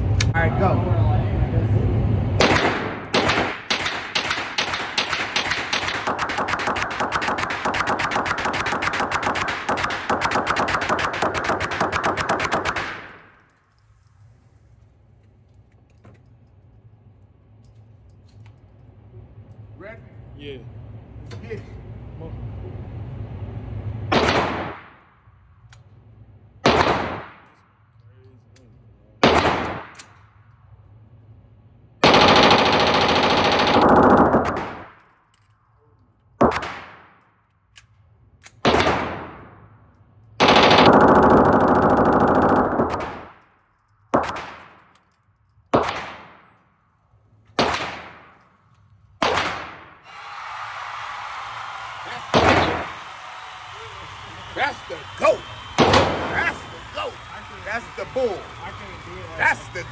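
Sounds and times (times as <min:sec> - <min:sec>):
rapid-fire gun burst: 0:02.4 - 0:13.2, 0:24.1 - 0:25.0, 0:26.6 - 0:27.4, 0:29.2 - 0:30.0, 0:32.0 - 0:35.0, 0:38.6 - 0:39.4, 0:40.4 - 0:43.4, 0:47.6 - 0:48.4, 0:49.2 - 0:50.0, 0:52.3 - 0:52.9, 0:55.8 - 0:56.6
gunshots echoing: 0:02.4 - 0:13.4, 0:24.1 - 0:25.1, 0:26.6 - 0:27.6, 0:29.2 - 0:30.2, 0:32.0 - 0:35.0, 0:36.4 - 0:37.2, 0:38.6 - 0:39.7, 0:40.4 - 0:43.4, 0:44.1 - 0:45.0, 0:45.7 - 0:46.6, 0:47.5 - 0:48.6, 0:49.2 - 0:50.1, 0:52.2 - 0:53.0, 0:55.8 - 0:56.8.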